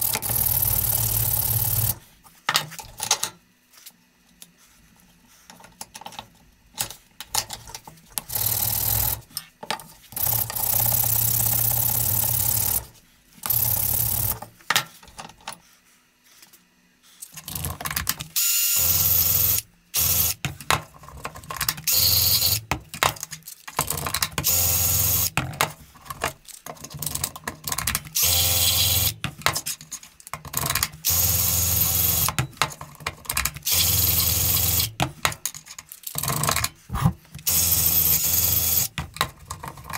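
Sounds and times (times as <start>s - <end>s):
electric power tool bursts: 18.4s - 20.4s, 21.9s - 22.6s, 24.4s - 25.4s, 28.2s - 29.2s, 31.0s - 32.4s, 33.6s - 35.0s, 37.5s - 38.9s.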